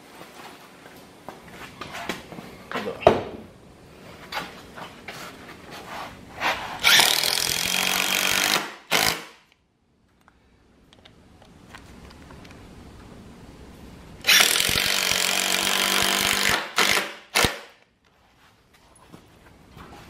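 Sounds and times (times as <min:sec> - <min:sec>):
cordless drill driving a screw: 0:06.8 - 0:09.3, 0:14.3 - 0:17.6.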